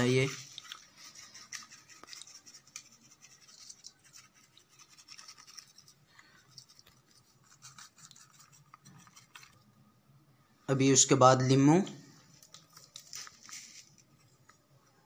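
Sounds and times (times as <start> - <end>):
fish scratching against steel bowl: 0.0 - 9.7.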